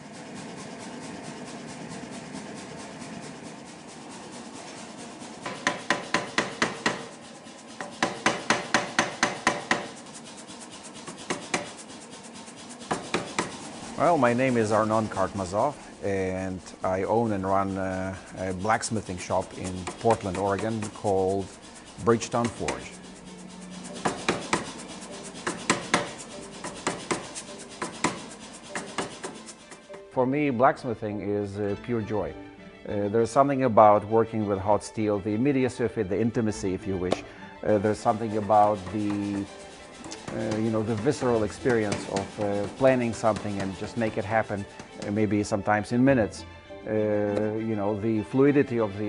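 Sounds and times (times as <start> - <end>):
faint rubbing noise: 0.0 - 30.1, 37.7 - 46.4.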